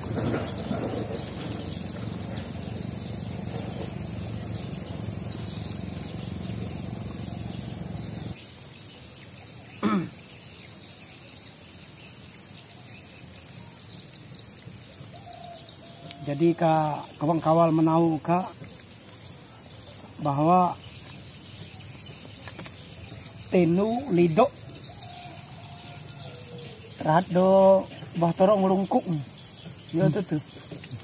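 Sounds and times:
rising and falling call: 0:00.0 - 0:08.4
insects droning: 0:00.0 - 0:31.0.

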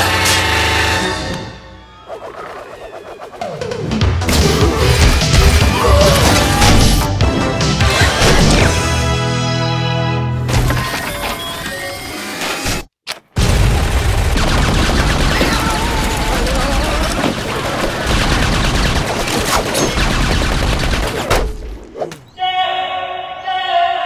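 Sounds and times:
cartoon rapid gunfire: 0:13.6 - 0:21.4.

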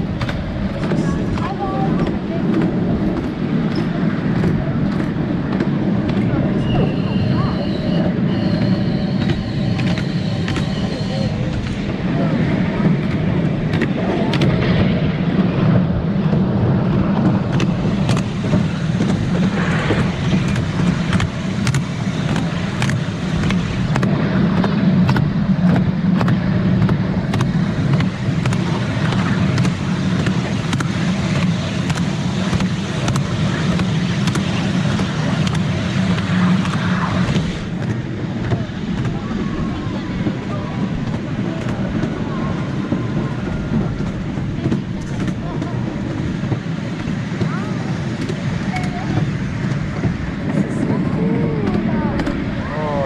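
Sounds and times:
train carriages rumbling: 0:00.0 - 0:53.0
wheels clicking and clacking: 0:00.0 - 0:53.0.

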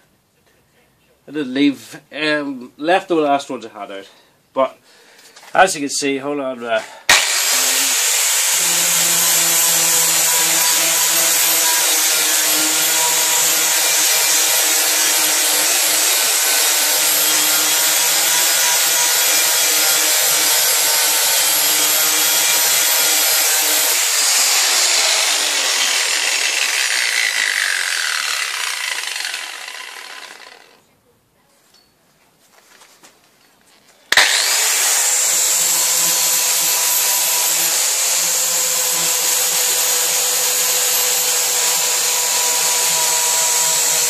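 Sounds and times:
angle grinder sanding metal: 0:07.1 - 0:30.8, 0:34.1 - 0:44.0.

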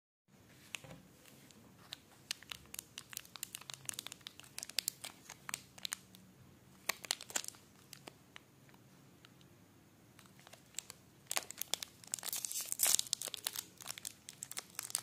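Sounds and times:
plastic wrapper crinkling: 0:00.7 - 0:06.2, 0:06.8 - 0:08.2, 0:10.2 - 0:15.0.

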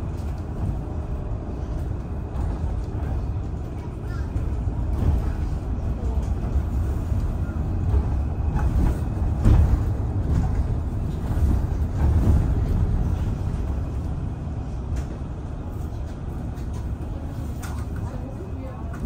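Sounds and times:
bus engine and road rumble: 0:00.0 - 0:19.0.

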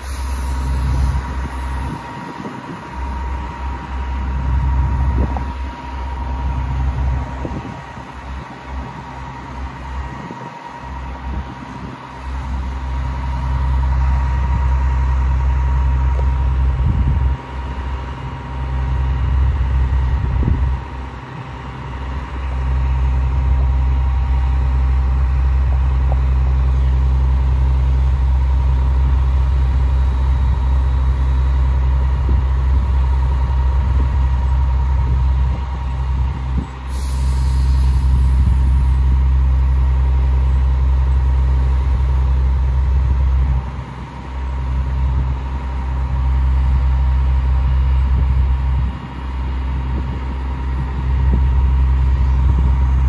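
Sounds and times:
diesel truck engine rumbling: 0:00.0 - 0:53.0
thin steady whine: 0:00.0 - 0:53.0.

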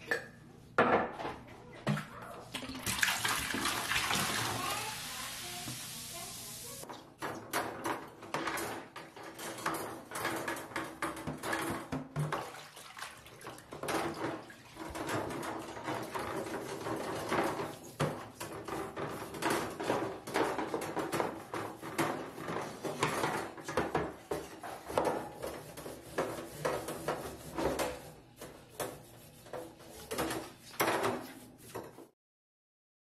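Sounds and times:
scrubbing and splashing in water: 0:02.6 - 0:05.6, 0:12.2 - 0:31.8
metal racks clinking against tub: 0:06.9 - 0:32.1.

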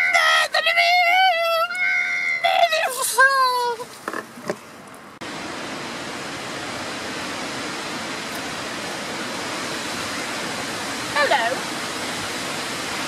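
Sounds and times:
rain falling: 0:05.2 - 0:13.0.

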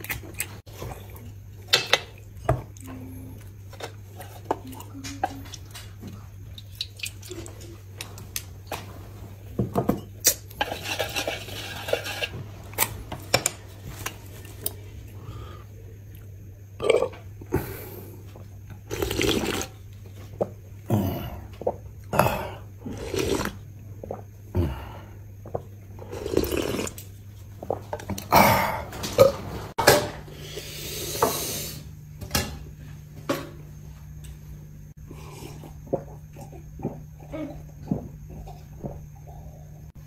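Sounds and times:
steady low hum: 0:00.0 - 0:40.0
slurping soup: 0:18.8 - 0:19.8, 0:21.6 - 0:24.2, 0:26.0 - 0:27.1.

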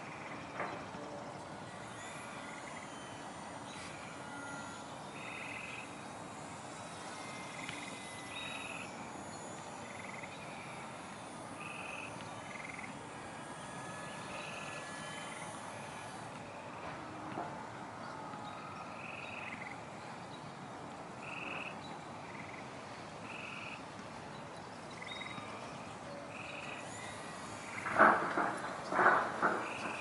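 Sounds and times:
frogs trilling: 0:00.0 - 0:00.5, 0:03.8 - 0:06.2, 0:06.8 - 0:13.0, 0:18.8 - 0:20.0, 0:21.2 - 0:23.8, 0:24.9 - 0:30.0
steady background hiss: 0:00.0 - 0:30.0.

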